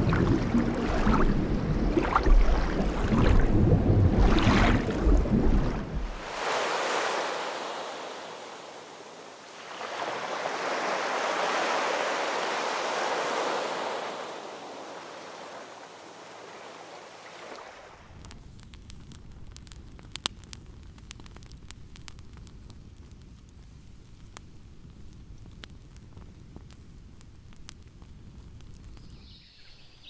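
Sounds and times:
ocean waves: 0.0 - 18.2
deep rumbling water: 0.0 - 21.6.

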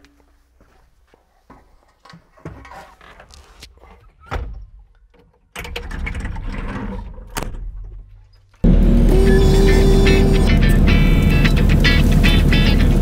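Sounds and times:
low steady engine rumble: 8.6 - 13.0.

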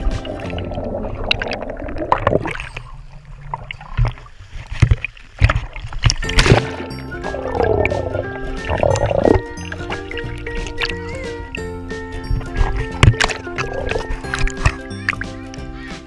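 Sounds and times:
background music: 0.0 - 1.6, 6.2 - 16.0
water sloshing and splashing: 0.0 - 16.0.

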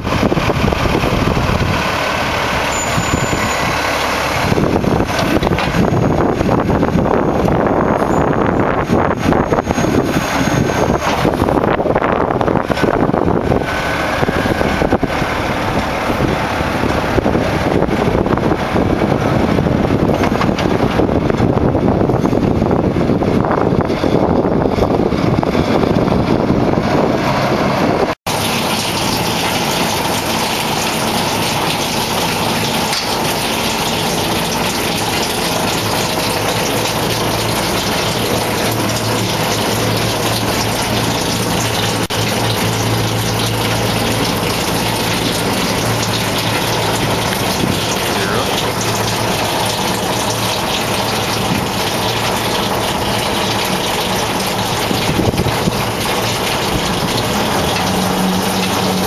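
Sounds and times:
diesel engine running: 0.0 - 59.0
wind noise on microphone: 0.0 - 59.0.

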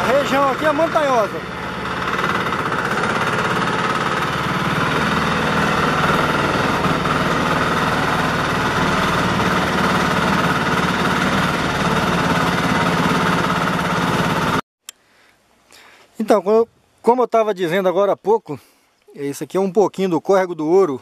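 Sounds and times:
diesel engine knocking steadily: 0.0 - 14.6.

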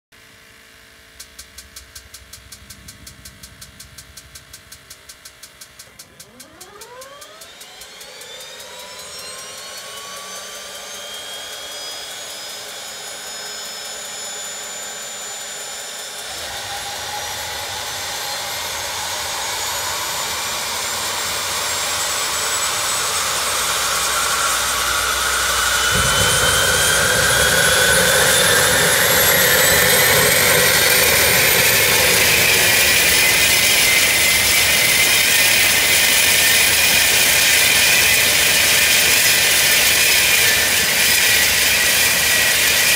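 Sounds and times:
turbine whine: 0.2 - 42.9
exhaust and propeller rumble: 1.2 - 7.8, 16.2 - 42.9.

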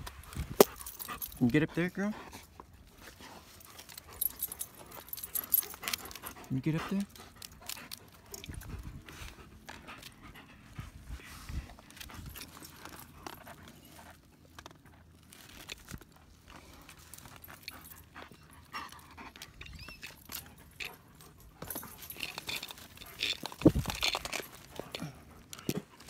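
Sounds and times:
dogs panting: 0.3 - 15.1, 16.3 - 26.0
footsteps on rock and leaves: 22.3 - 24.7.

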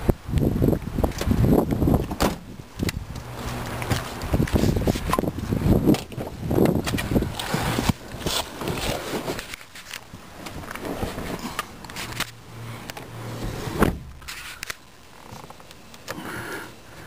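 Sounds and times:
heavy thump: 2.1 - 2.5, 13.4 - 14.3
car door clicks and scrapes: 3.8 - 15.6.

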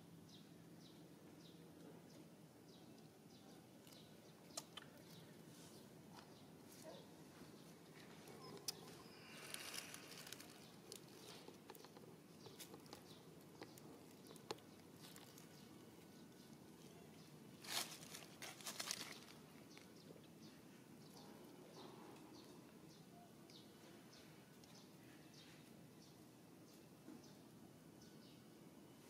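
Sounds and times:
rustling: 5.5 - 19.9.

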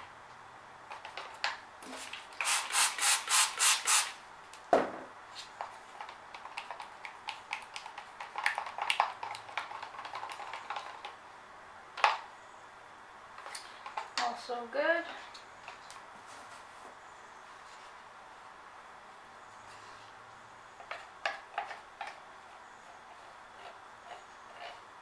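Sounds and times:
stir stick scraping cup: 22.8 - 24.9.

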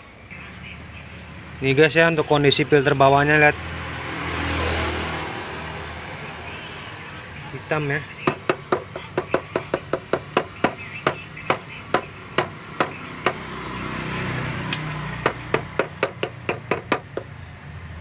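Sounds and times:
metal filter knocking on canister: 8.3 - 13.4, 15.2 - 17.3.

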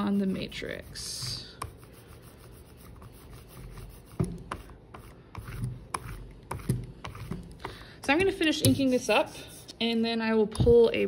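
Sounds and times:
brayer rubbing on ink: 0.0 - 7.6.

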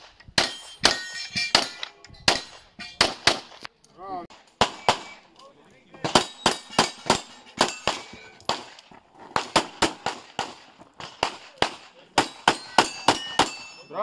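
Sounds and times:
pistol shots: 0.4 - 3.6, 4.6 - 5.2, 6.0 - 8.8, 9.4 - 13.7.

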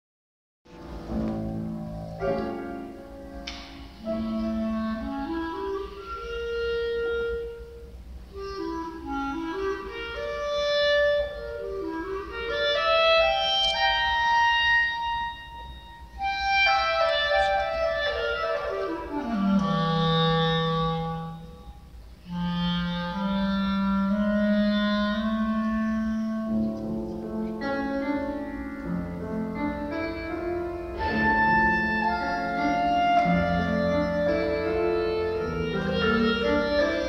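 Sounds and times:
clarinet melody: 0.7 - 37.0
piano accompaniment: 0.7 - 37.0.

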